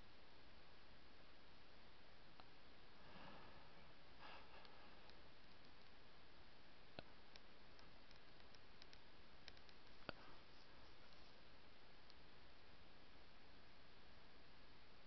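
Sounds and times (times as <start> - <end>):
faint hiss: 0.0 - 15.0
soft clicks: 6.9 - 11.3.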